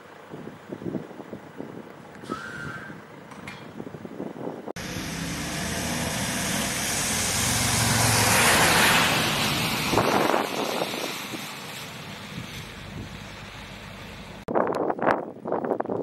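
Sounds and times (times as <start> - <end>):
vehicle driving past: 4.8 - 14.4.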